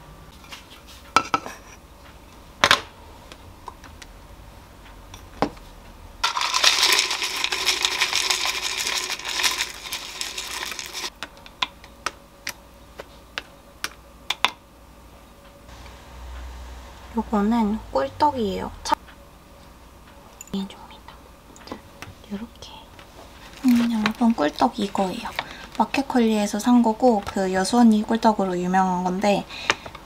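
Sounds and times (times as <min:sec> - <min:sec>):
granola rattling into bowl: 0:06.2 - 0:11.1
almonds clicking onto bowl: 0:06.2 - 0:12.2.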